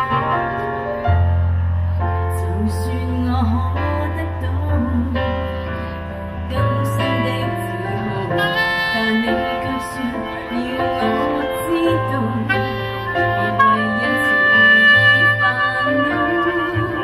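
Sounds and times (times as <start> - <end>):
piano accompaniment: 0.0 - 17.0
saxophone melody: 7.2 - 17.0.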